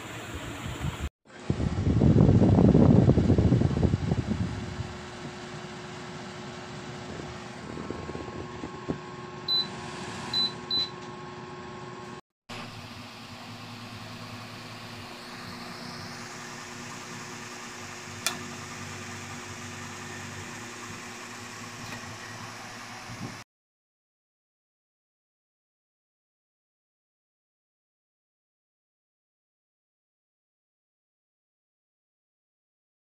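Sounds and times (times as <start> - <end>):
air cooler fan humming: 0.0 - 23.4
sharp click: 18.2 - 18.5.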